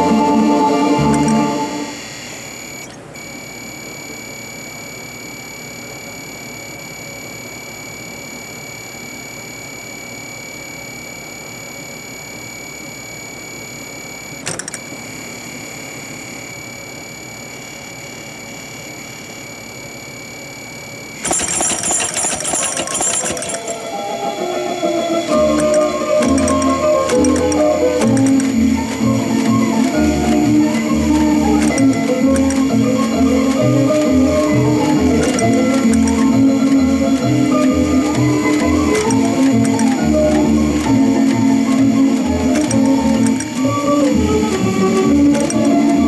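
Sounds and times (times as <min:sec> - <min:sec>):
faint high whines: 0:00.0 - 0:46.0
mechanical hum: 0:00.0 - 0:46.0
click: 0:02.8 - 0:03.3, 0:14.4 - 0:14.9, 0:25.6 - 0:34.1, 0:34.8 - 0:46.0
mechanical strikers clattering: 0:21.2 - 0:23.8, 0:25.4 - 0:46.0.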